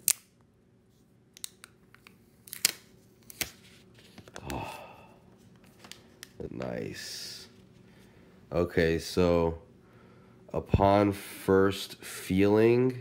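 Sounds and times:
plastic film clicks and snaps: 0:01.4 - 0:03.6.

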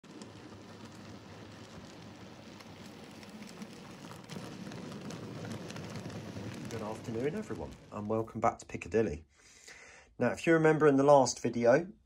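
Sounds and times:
model train wheels rattling on rails: 0:00.0 - 0:08.1.

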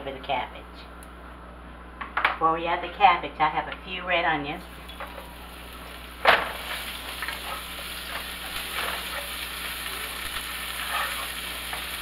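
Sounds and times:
onions sizzling in hot grease: 0:04.6 - 0:12.0.

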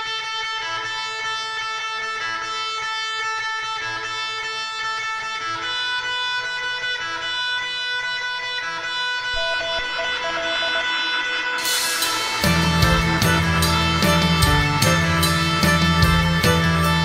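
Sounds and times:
ringing guitar chords: 0:09.2 - 0:17.0.

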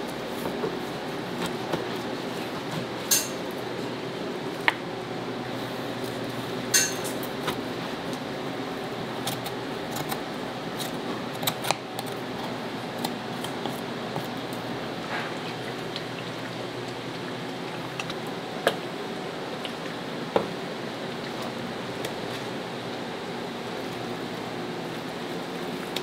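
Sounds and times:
dishes and utensils clinking: 0:03.1 - 0:03.4, 0:06.7 - 0:07.2.

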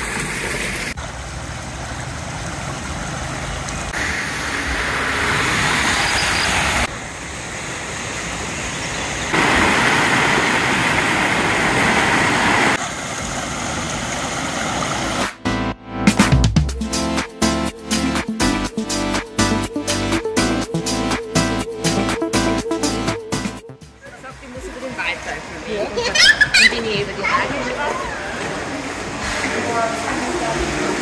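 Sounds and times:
floodwater rushing: 0:00.0 - 0:15.4, 0:24.1 - 0:31.0.

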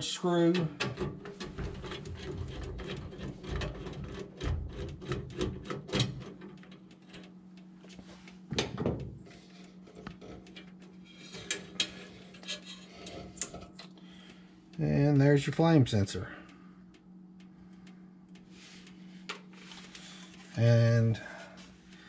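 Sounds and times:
steady low hum: 0:00.0 - 0:22.0
small metallic clicks and scrapes: 0:00.4 - 0:08.4, 0:09.4 - 0:14.4.

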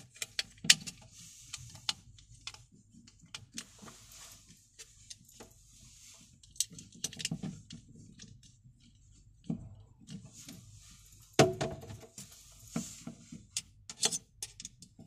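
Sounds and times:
small plastic and metal parts clicking: 0:13.6 - 0:14.9.

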